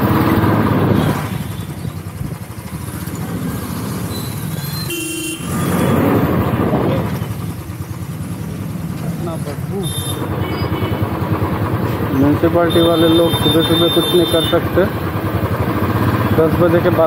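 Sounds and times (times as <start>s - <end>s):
motorcycle engine running: 0.0s - 17.0s
vehicle horn toot: 4.8s - 5.8s, 9.8s - 11.1s, 12.6s - 14.8s.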